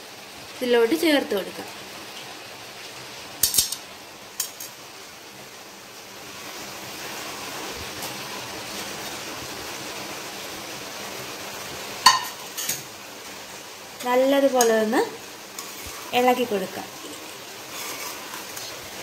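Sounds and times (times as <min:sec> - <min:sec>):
vegetables cooking hiss: 0:00.0 - 0:19.0
dishware clatter: 0:12.1 - 0:12.8.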